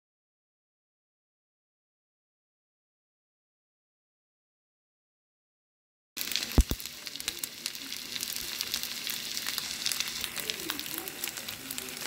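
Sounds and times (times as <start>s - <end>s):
dumplings sizzling in frying pan: 6.2s - 12.0s.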